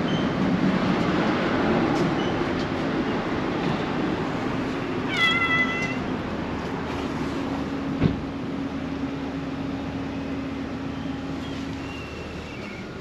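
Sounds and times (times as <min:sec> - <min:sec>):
cat meowing: 0:05.1 - 0:06.0.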